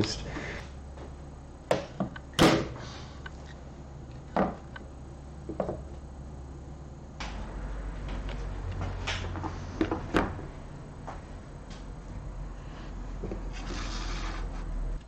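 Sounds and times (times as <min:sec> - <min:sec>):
steady low hum: 0:00.0 - 0:15.0
parts knocking on wooden board: 0:05.5 - 0:05.8.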